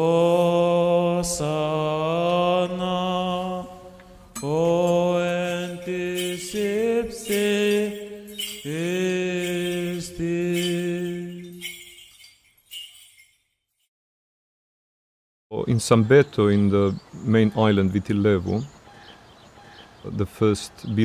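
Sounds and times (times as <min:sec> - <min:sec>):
man chanting: 0:00.0 - 0:11.7, 0:15.5 - 0:18.7, 0:20.0 - 0:21.0.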